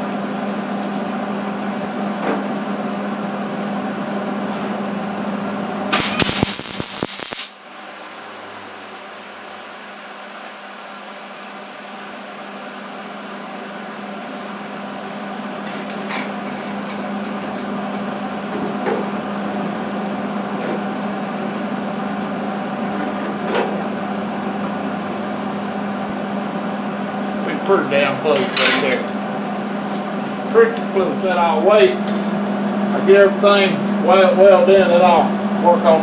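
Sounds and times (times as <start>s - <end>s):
shop equipment humming: 0.0s - 36.0s.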